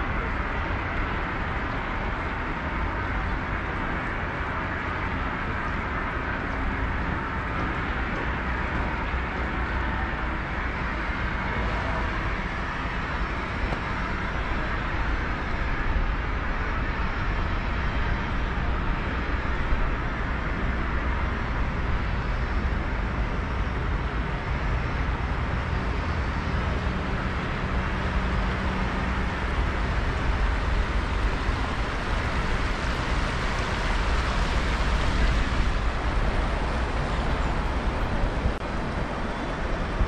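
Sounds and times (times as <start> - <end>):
city road traffic rumble: 0.0 - 40.0.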